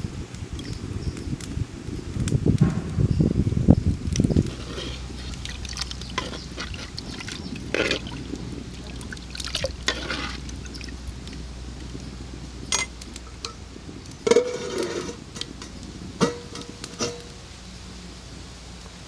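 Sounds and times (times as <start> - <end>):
ladle stirring and scraping pot: 4.1 - 11.4, 14.2 - 17.3
metal plate clanking on pot: 4.4 - 8.2, 9.8 - 10.4, 12.7 - 13.6, 14.2 - 17.3.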